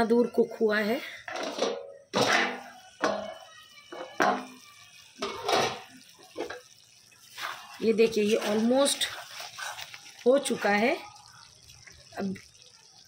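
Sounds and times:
metal pan lid clinking: 0:01.3 - 0:03.4, 0:04.0 - 0:04.6, 0:05.2 - 0:06.6.

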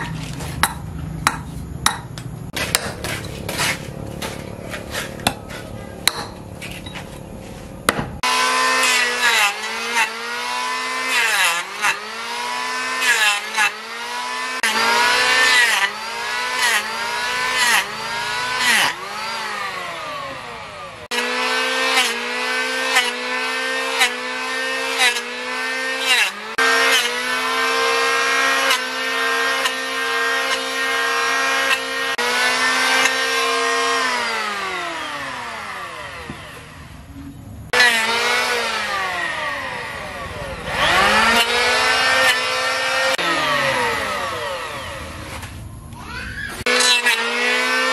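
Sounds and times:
sharp knocks: 0:00.0 - 0:04.4, 0:07.8 - 0:08.2
electric planer cutting wood: 0:08.2 - 0:37.0, 0:37.7 - 0:47.9.

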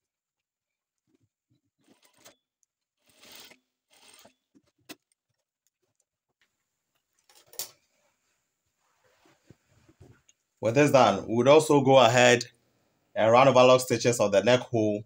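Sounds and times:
fabric rustling: 0:07.1 - 0:10.3.

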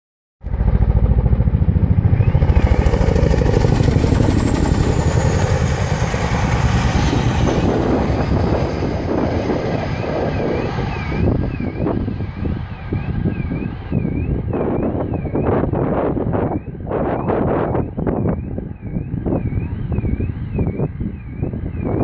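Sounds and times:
helicopter rotor thudding: 0:00.5 - 0:14.3
turbine whine: 0:00.5 - 0:22.0
car alarm warbling: 0:17.6 - 0:22.0.

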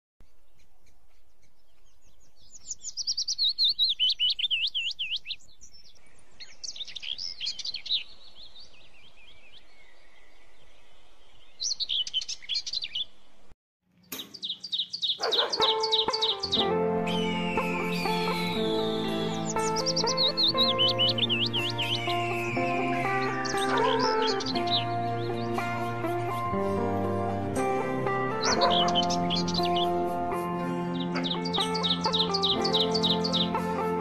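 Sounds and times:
bird chirping: 0:00.2 - 0:13.4, 0:14.0 - 0:26.5, 0:28.4 - 0:30.2, 0:30.8 - 0:33.6
background music: 0:15.3 - 0:34.0.

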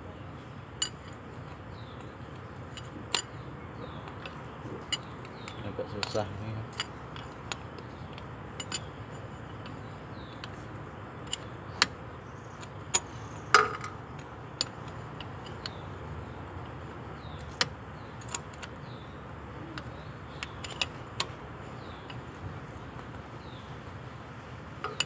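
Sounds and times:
tool clicking and scraping metal: 0:01.8 - 0:15.8, 0:24.8 - 0:25.0.

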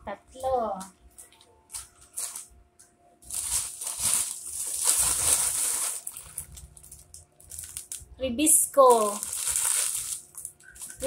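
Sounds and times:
plastic packaging crinkling: 0:01.1 - 0:02.5, 0:03.2 - 0:08.2, 0:08.8 - 0:11.0.

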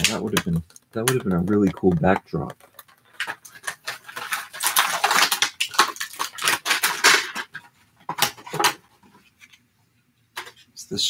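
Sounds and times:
plastic packaging crinkling: 0:00.0 - 0:09.6.

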